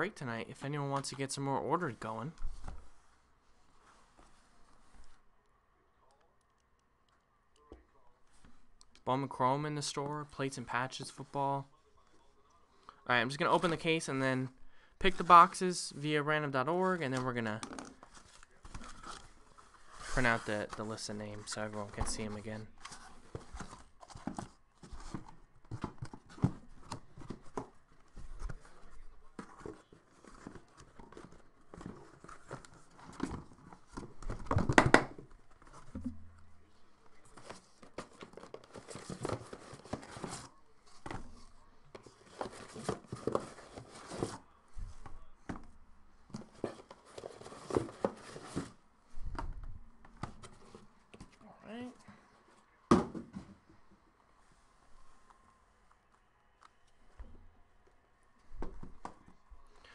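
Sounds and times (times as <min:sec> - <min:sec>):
cardboard flaps rustling: 0:37.2 - 0:45.7, 0:46.3 - 0:49.5.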